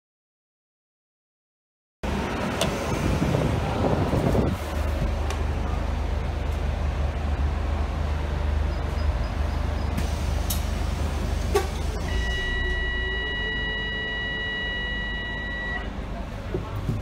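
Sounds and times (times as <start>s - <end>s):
bus engine hum: 2.0s - 17.0s
high electronic tone: 12.0s - 15.9s.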